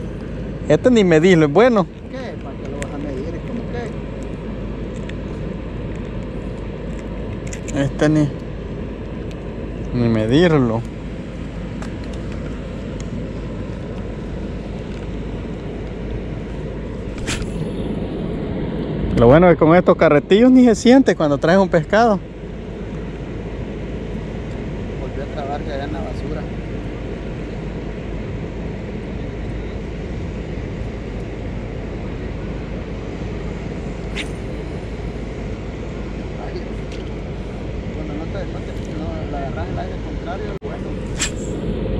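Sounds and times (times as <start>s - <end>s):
sharp click: 17.1s - 17.6s, 41.1s - 41.6s
brief sharp sound: 17.2s - 17.8s, 41.1s - 41.6s.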